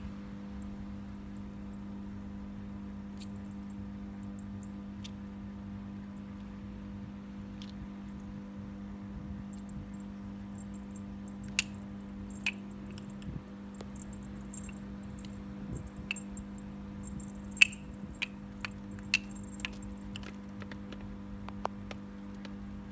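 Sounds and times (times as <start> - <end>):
steady low hum: 0.0 - 22.9
ball clattering on tiled floor: 17.5 - 21.1.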